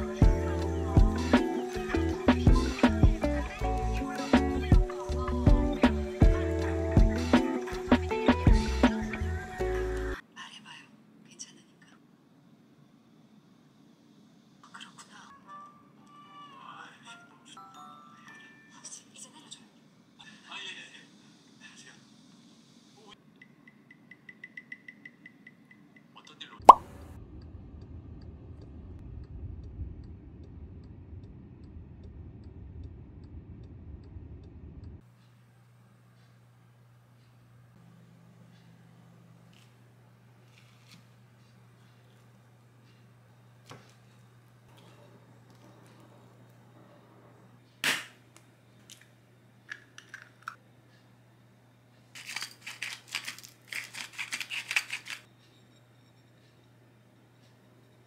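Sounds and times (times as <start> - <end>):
low outdoor rumble: 26.8 - 40.5
egg cracking: 49.7 - 50.6, 52.2 - 55.3
salt grinder grinding: 52.2 - 55.3
faint regular ticks: 52.8 - 55.6.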